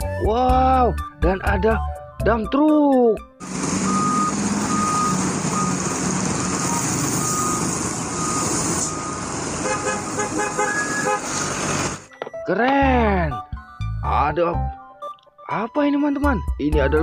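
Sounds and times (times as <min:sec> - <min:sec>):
diesel truck engine running: 0:03.4 - 0:12.1.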